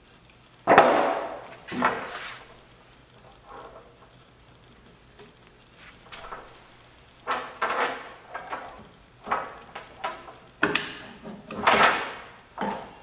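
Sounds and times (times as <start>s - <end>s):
metal parts knocking and scraping: 6.1s - 13.0s.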